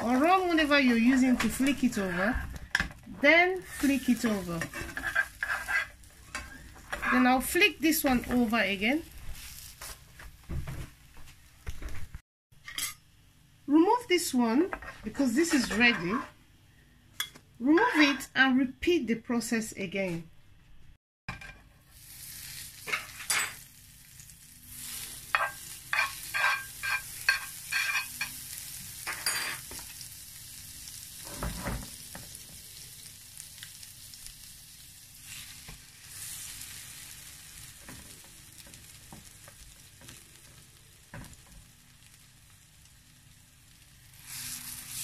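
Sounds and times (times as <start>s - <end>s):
butter sizzling in frying pan: 3.3s - 10.5s, 21.8s - 45.0s
metal spoon clinking on pan: 25.3s - 28.4s.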